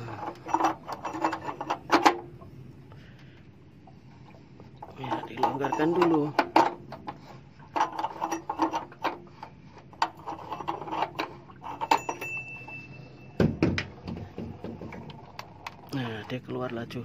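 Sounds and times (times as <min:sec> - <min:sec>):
metal tools clicking and clattering: 0:00.0 - 0:02.2, 0:04.9 - 0:06.8, 0:10.0 - 0:13.0.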